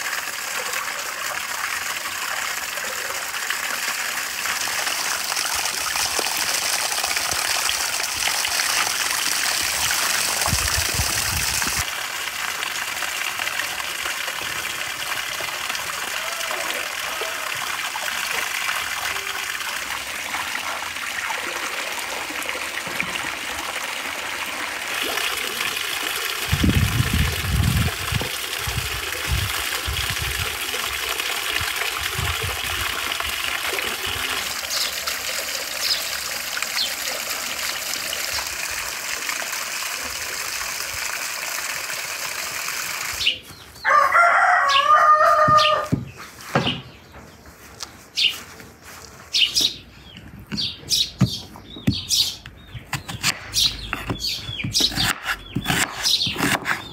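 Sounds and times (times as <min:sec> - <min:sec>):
fountain water splashing and trickling: 0:00.0 - 0:45.9
rooster crowing: 0:43.8 - 0:46.0.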